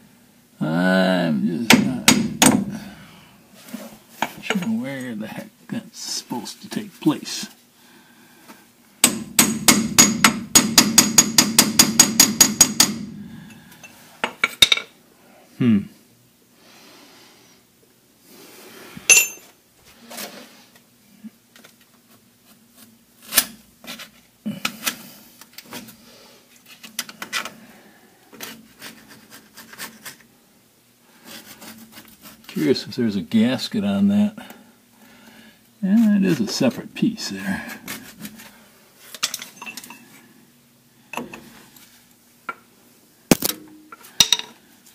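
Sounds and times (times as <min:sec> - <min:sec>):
steel tools clanking: 0:04.2 - 0:05.1, 0:19.1 - 0:19.5, 0:39.2 - 0:40.1
rapid hammer blows on metal: 0:09.0 - 0:13.1.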